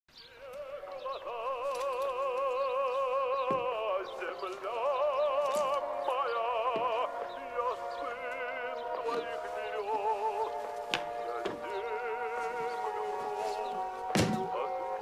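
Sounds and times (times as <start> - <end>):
operatic singing: 0.1 - 15.0.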